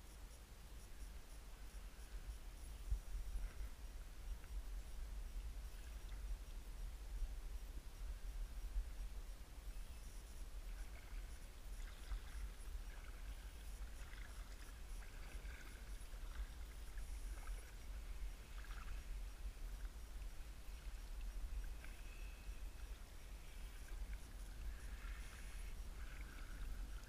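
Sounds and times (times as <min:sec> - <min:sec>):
paddle dipping and dripping in water: 0:09.7 - 0:27.0.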